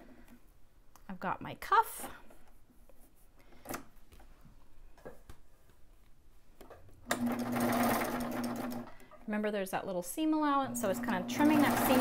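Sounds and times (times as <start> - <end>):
sewing machine stitching: 7.1 - 8.9, 10.7 - 12.0.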